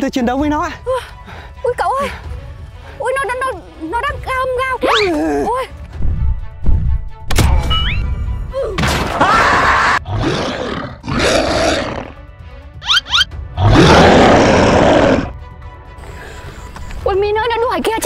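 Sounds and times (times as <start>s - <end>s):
background music: 0.0s - 18.0s
monster roars: 9.5s - 12.2s, 13.6s - 15.3s.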